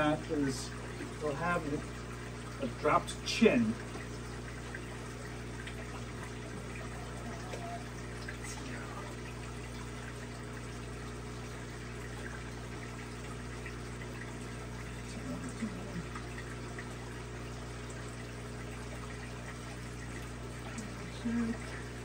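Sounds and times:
low pump hum: 0.0s - 22.0s
water trickling and rushing: 0.0s - 22.0s.

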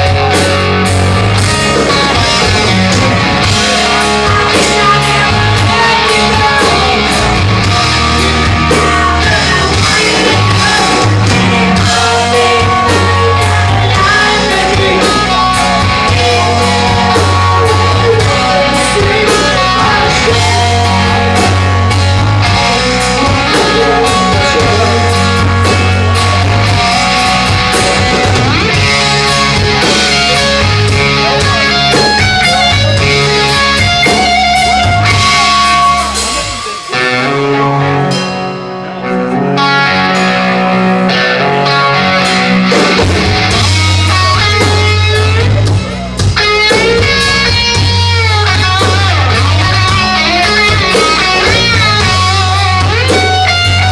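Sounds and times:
person singing: 0.0s - 38.2s
bass guitar: 0.0s - 53.9s
drums: 0.0s - 53.9s
electric guitars: 0.0s - 53.9s.

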